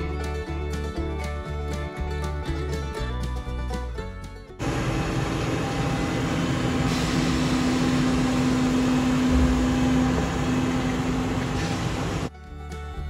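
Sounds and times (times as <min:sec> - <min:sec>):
combine harvester engine: 0:04.6 - 0:12.3.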